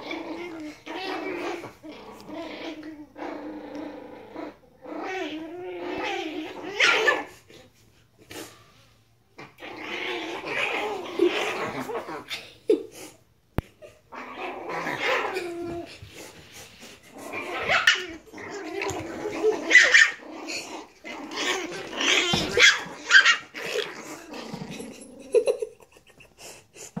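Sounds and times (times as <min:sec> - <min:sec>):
puppies growling: 0:00.0 - 0:07.8, 0:09.4 - 0:12.5, 0:13.6 - 0:27.0
puppies yipping: 0:18.9 - 0:20.2, 0:22.0 - 0:23.8.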